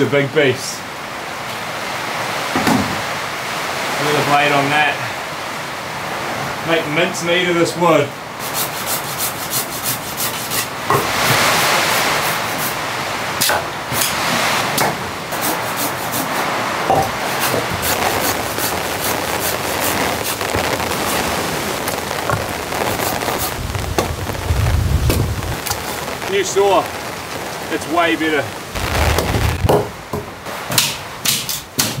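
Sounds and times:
saw rasping through branches: 0:08.4 - 0:12.8, 0:15.3 - 0:16.5.

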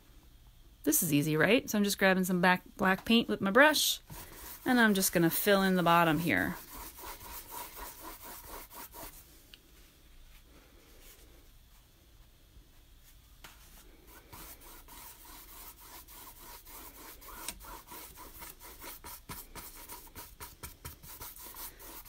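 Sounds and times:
paintbrush scrubbing on canvas: 0:04.0 - 0:09.2, 0:13.6 - 0:22.0.

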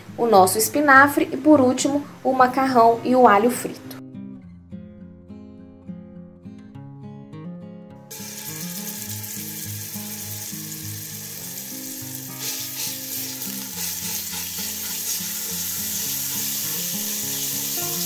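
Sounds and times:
oil sizzling in a hot pan: 0:08.1 - 0:18.0.

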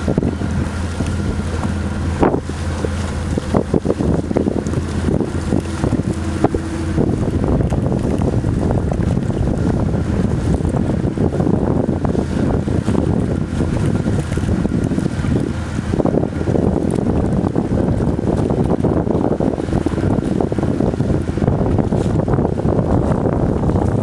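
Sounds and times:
ferry engines droning: 0:00.0 - 0:11.1
wind buffeting microphone: 0:00.0 - 0:24.0.

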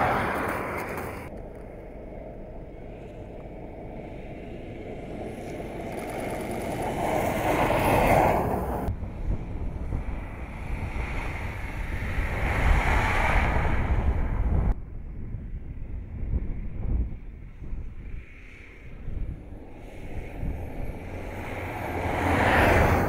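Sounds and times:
car driving past on snow: 0:05.3 - 0:08.9, 0:10.1 - 0:14.5, 0:19.8 - 0:23.0.

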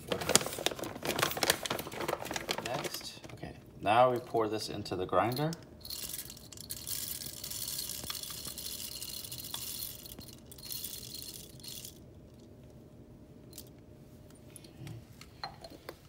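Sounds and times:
coffee beans rattling into grinder: 0:05.3 - 0:12.0.

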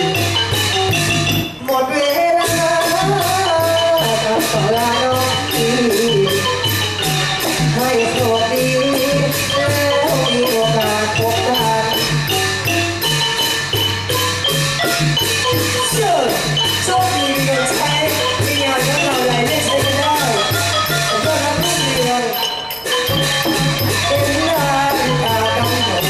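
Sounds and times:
music with steady beat: 0:00.0 - 0:26.0
repeating bass line: 0:23.1 - 0:26.0.

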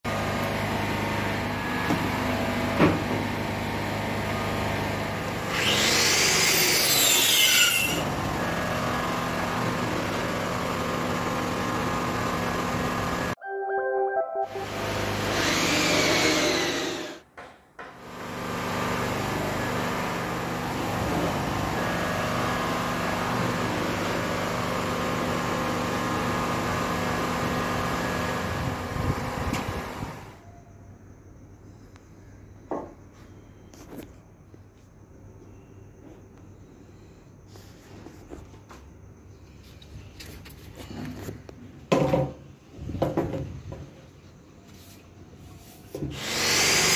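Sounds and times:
mechanical hum: 0:00.1 - 0:13.4, 0:14.5 - 0:46.9
music: 0:13.4 - 0:14.7.

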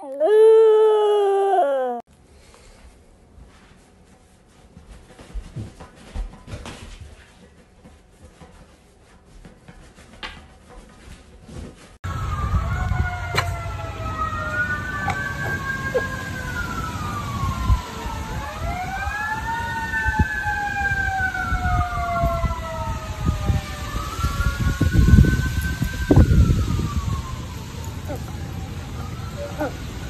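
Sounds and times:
dog howling: 0:00.0 - 0:02.0, 0:27.9 - 0:28.5, 0:29.3 - 0:29.9
sirens wailing: 0:12.0 - 0:30.0.

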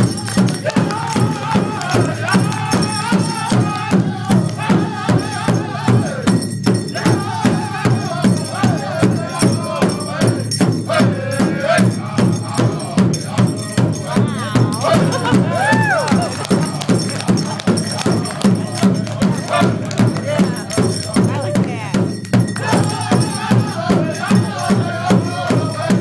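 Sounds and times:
group singing: 0:00.0 - 0:26.0
hand drums steady beat: 0:00.0 - 0:26.0.

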